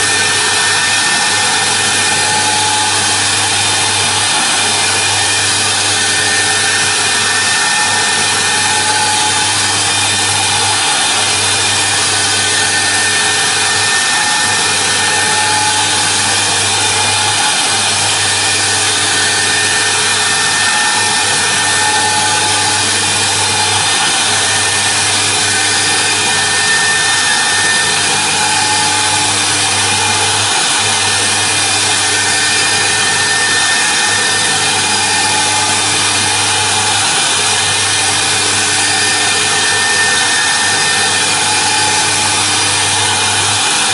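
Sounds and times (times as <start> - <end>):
router spindle high whine: 0.0 - 43.9.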